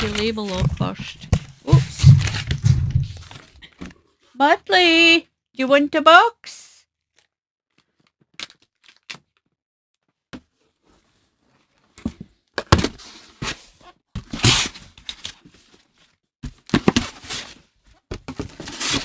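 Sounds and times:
cardboard scraping rustles: 0.0 - 3.7, 16.9 - 19.0
cardboard box thunks: 1.3 - 3.5.

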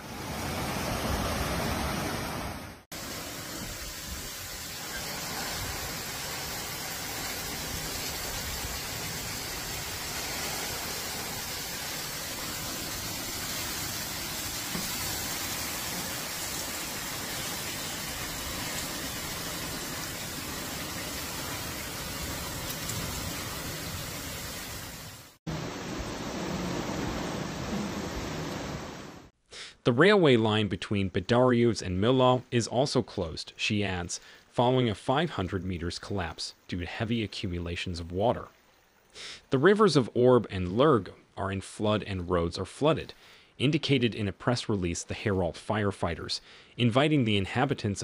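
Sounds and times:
rush of floodwater: 0.0 - 29.3
torrential rain hissing: 0.0 - 29.3, 32.1 - 40.1.

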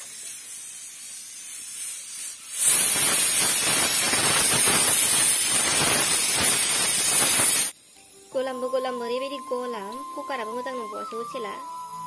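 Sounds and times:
pressure cooker valve venting steam: 0.0 - 7.8
pressure cooker steam hiss: 0.0 - 12.0.

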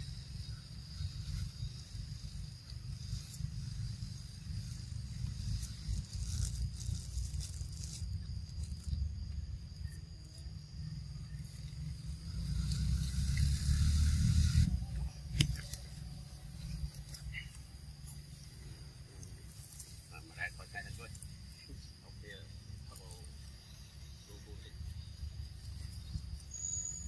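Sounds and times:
high insect buzz: 0.0 - 27.0
sharp click: 15.3 - 15.8.

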